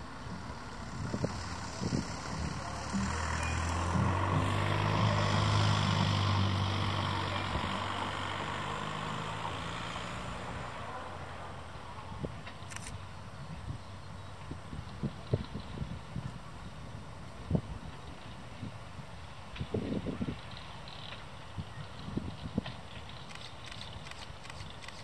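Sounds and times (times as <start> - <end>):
railcar humming on track: 0.0 - 25.0.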